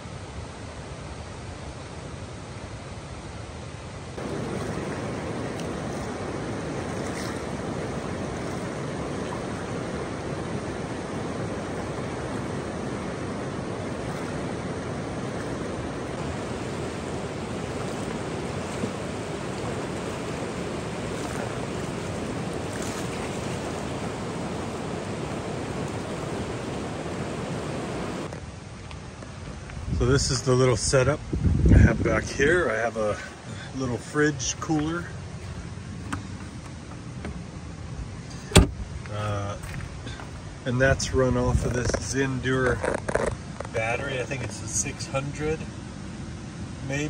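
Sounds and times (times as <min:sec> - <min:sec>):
water rushing over rocks: 0:04.1 - 0:29.6.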